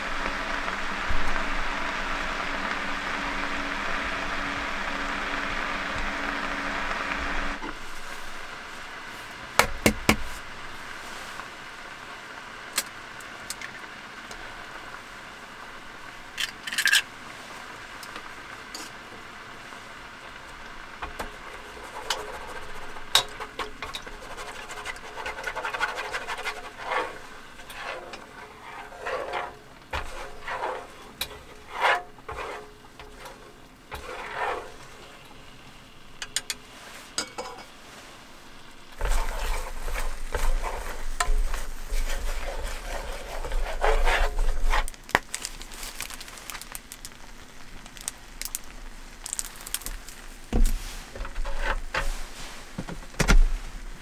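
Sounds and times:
faint simmer: 0:00.0 - 0:54.0
chopsticks tapping and stirring: 0:21.0 - 0:33.4, 0:36.2 - 0:37.8, 0:39.0 - 0:47.2
egg cracking: 0:39.0 - 0:50.7.

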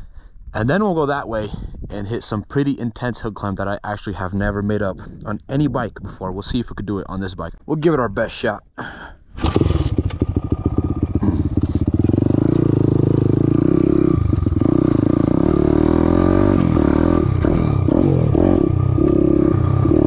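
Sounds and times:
motorbike engine revving: 0:09.4 - 0:20.0.

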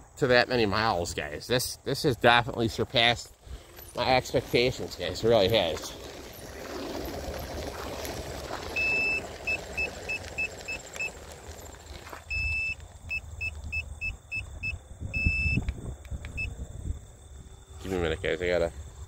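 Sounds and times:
electronic scooter beeping: 0:03.6 - 0:16.6.

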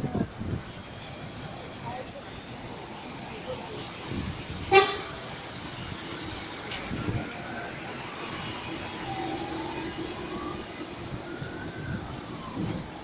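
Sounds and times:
tyres washing through water: 0:00.0 - 0:13.0
faint siren wailing: 0:05.8 - 0:13.0.

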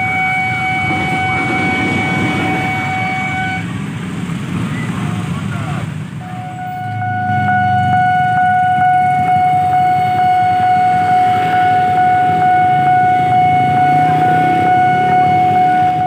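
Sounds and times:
high-pitched warning tone: 0:00.0 - 0:03.7.

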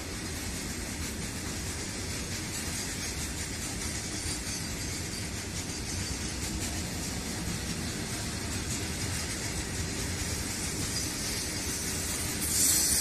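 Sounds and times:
freight train wheels on track: 0:00.0 - 0:13.0.

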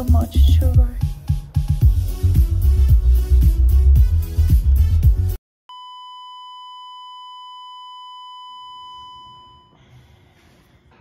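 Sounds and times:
bass-heavy music with beat: 0:00.0 - 0:05.4
single-pitch electronic beep: 0:05.7 - 0:09.8.

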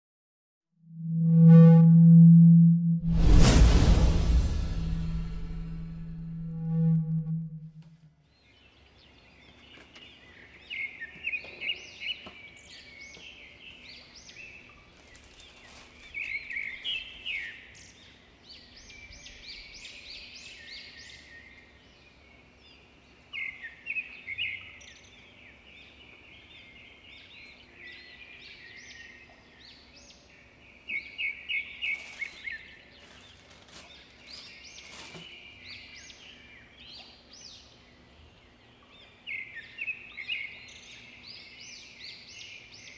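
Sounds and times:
faint clicks and rustles: 0:14.8 - 0:16.4, 0:32.0 - 0:35.3.

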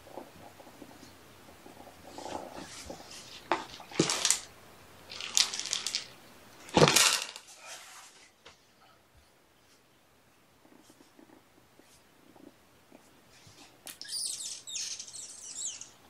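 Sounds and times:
crinkly rustling: 0:05.1 - 0:08.4.

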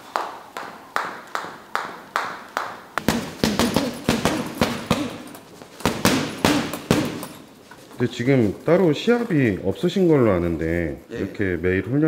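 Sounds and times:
boxing gloves punching: 0:03.0 - 0:07.5.

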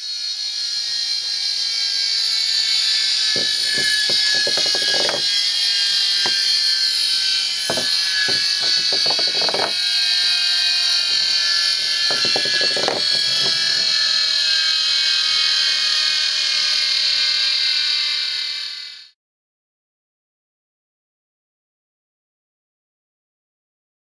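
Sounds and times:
turbine high-pitched whine: 0:00.0 - 0:19.1
short knocks and clicks: 0:03.4 - 0:05.3, 0:07.7 - 0:09.8, 0:11.2 - 0:14.0.

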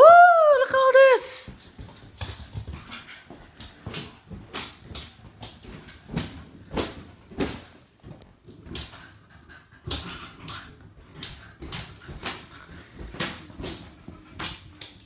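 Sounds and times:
puppy panting and whimpering: 0:08.8 - 0:14.9.

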